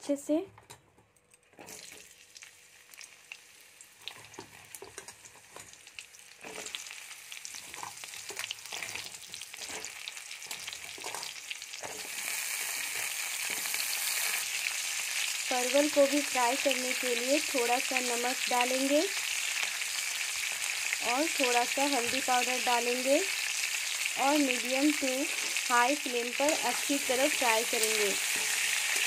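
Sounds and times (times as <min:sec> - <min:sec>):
vegetables sizzling in hot oil: 0:01.6 - 0:29.0.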